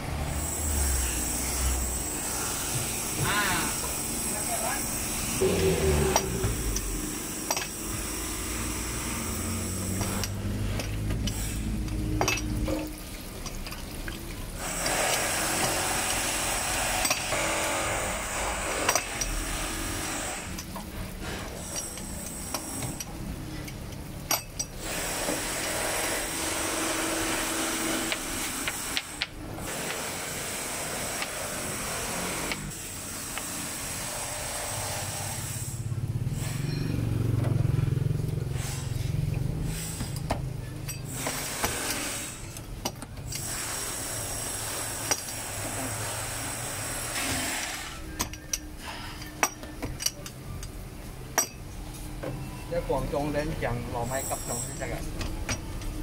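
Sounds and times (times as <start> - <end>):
stall background hiss: 0.0 - 56.0.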